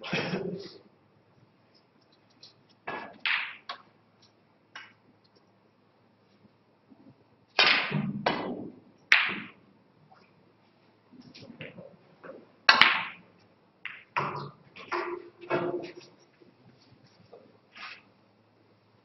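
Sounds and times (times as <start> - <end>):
snooker balls clacking: 2.9 - 3.9, 7.6 - 9.6, 11.4 - 16.2.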